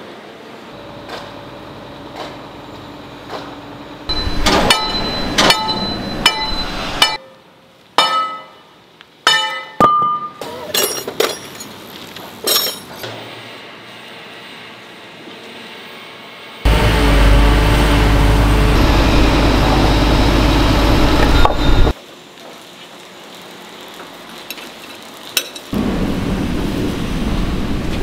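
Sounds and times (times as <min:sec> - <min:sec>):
hammer striking steel: 0:04.1 - 0:07.4, 0:08.0 - 0:11.0
rushing noise: 0:16.6 - 0:22.0, 0:25.8 - 0:28.0.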